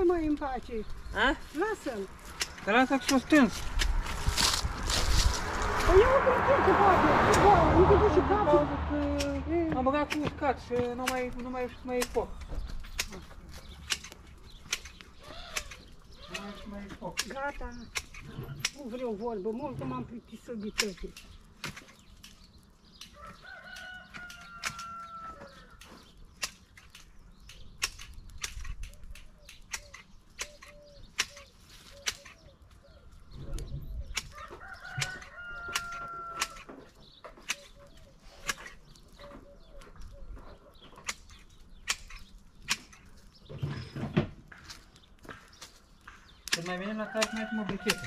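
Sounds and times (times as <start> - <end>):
sharp clicks and cracks: 1.5 - 5.8, 9.2 - 19.0, 20.7 - 25.1, 25.7 - 32.8, 33.6 - 39.2, 40.8 - 43.5, 44.5 - 48.0
rooster crowing: 23.2 - 25.8, 34.3 - 36.7, 47.0 - 48.0.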